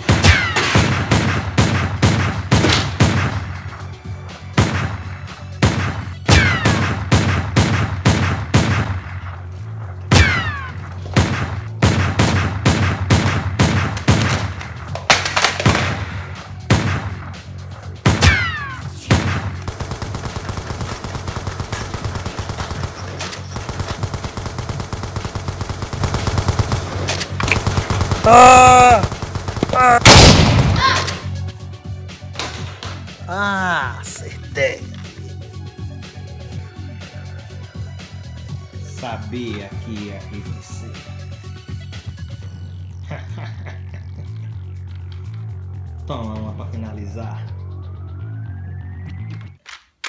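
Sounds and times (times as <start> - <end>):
single gunshots: 28.9 - 31.2.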